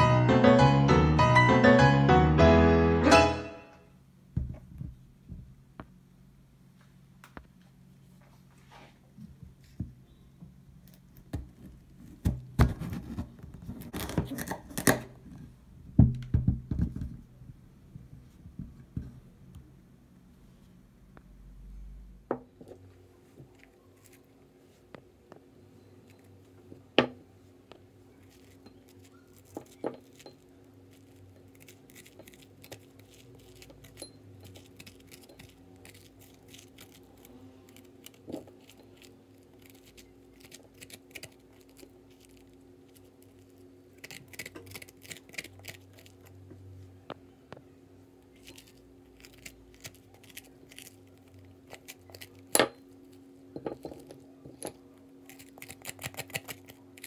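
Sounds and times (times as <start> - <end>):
faint steady hum: 0.0 - 57.0
spoon scraping pumpkin: 28.2 - 46.3, 55.2 - 57.0.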